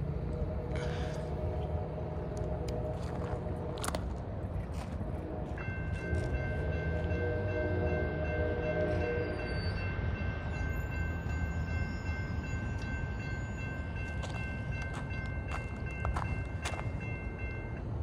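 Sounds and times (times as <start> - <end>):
locomotive horn chord: 0.0 - 4.2, 4.8 - 9.8
train rumbling past: 0.0 - 18.0.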